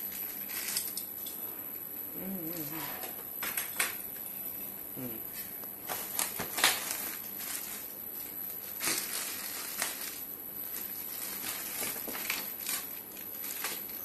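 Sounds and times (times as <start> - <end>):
plastic bag crinkling: 5.8 - 14.0.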